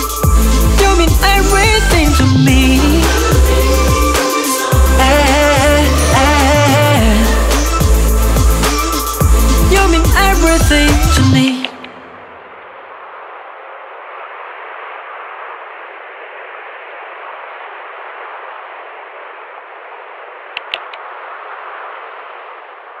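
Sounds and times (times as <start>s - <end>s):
static hiss: 0.0s - 23.0s
glitch clicks: 20.5s - 21.0s.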